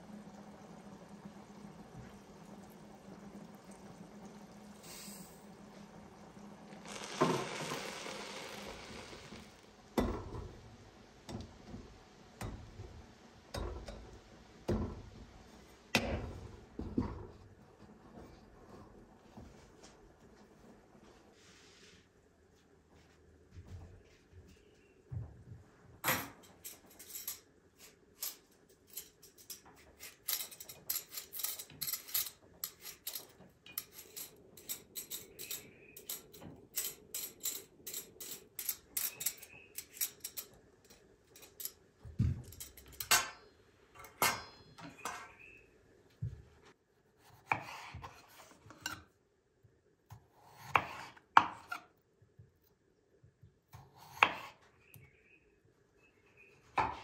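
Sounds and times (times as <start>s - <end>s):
peeler scraping potatoes: 29.9s - 40.5s.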